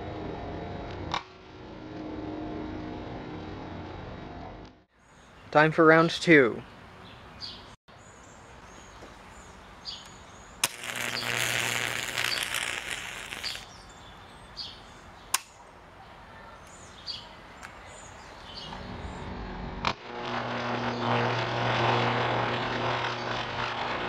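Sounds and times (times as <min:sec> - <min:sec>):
low electrical hum: 0:08.0 - 0:15.9
buzzing electric crackle: 0:10.6 - 0:13.7, 0:19.4 - 0:24.0
electric arc cracking: 0:10.6 - 0:13.8, 0:19.9 - 0:24.0.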